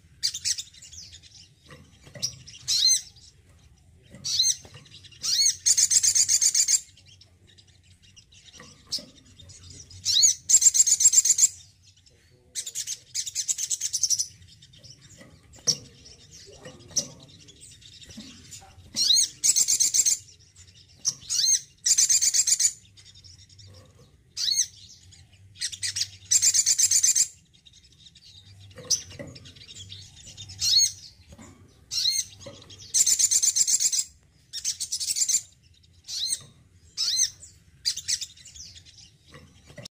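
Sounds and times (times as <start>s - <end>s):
sunbird twittering: 0.0s - 39.8s.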